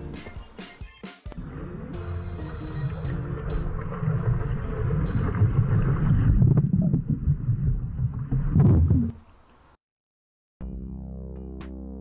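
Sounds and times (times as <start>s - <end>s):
underwater churning bubbles: 1.4s - 9.2s.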